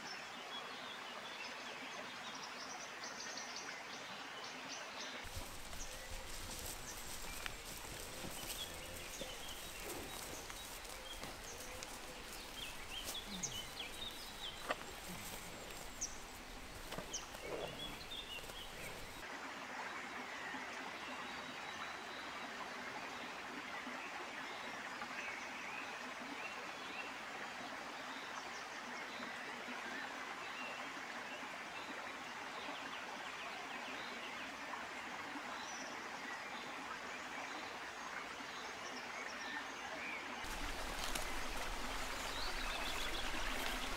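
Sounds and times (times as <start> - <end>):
small birds chirping: 5.2 - 19.2, 40.4 - 43.9
steady hiss: 5.3 - 19.2.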